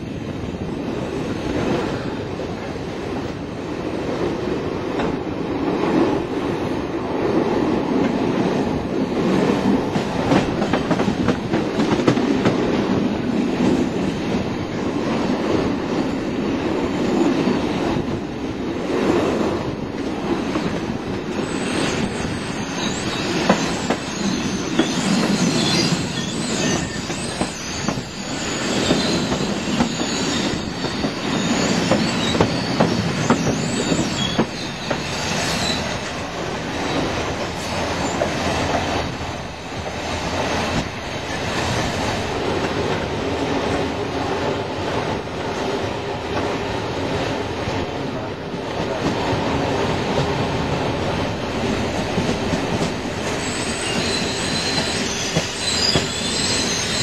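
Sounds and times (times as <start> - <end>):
train rumbling on rails: 0.0 - 57.0
high wheel squeal: 21.3 - 36.2, 51.8 - 57.0.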